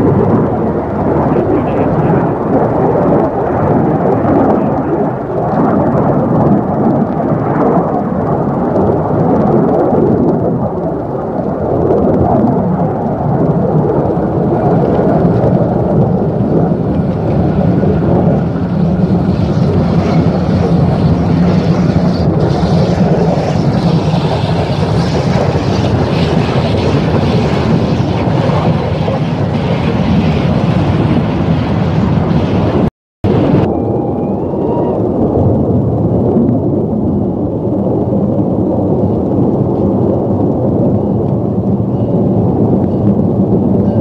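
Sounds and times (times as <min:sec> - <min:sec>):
aircraft roar: 0:00.0 - 0:44.0.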